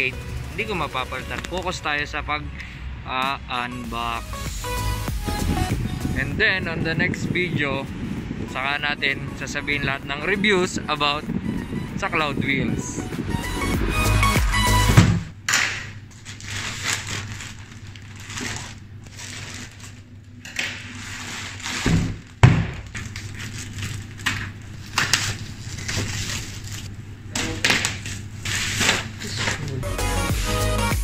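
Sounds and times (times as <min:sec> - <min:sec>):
plastic mailer crinkling: 0:15.8 - 0:29.8.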